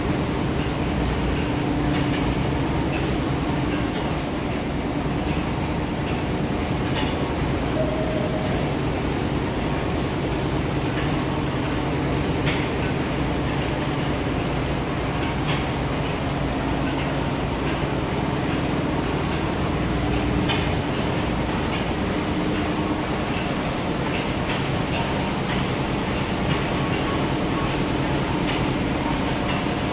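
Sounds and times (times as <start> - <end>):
machinery drone: 7.7 - 11.7.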